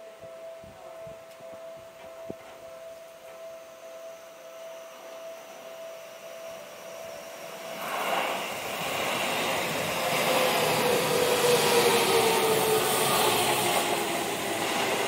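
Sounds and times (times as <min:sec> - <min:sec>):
train whine: 0:00.0 - 0:15.0
train rushing into station: 0:04.8 - 0:15.0.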